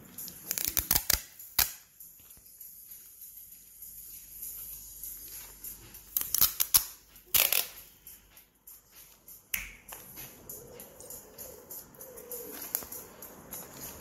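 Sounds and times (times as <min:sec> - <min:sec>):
sticky tape ripping: 0:00.2 - 0:01.8, 0:06.1 - 0:07.8
tape clicks: 0:00.2 - 0:02.4, 0:06.1 - 0:07.9, 0:09.5 - 0:14.0.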